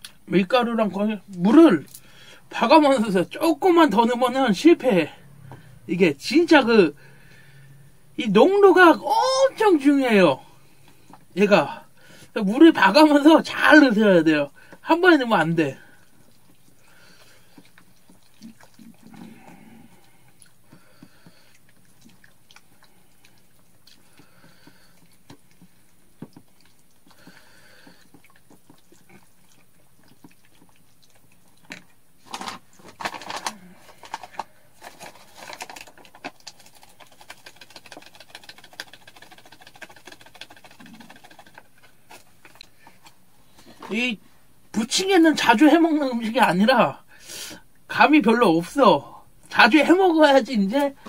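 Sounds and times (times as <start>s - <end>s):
batter squelching as stirred: 8.3s - 46.6s.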